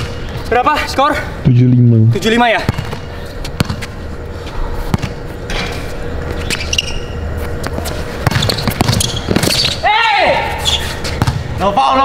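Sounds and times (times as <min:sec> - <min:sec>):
basketball bouncing: 0:02.6 - 0:03.0, 0:03.6 - 0:03.9, 0:04.9 - 0:05.2, 0:07.6 - 0:09.8, 0:11.1 - 0:11.6.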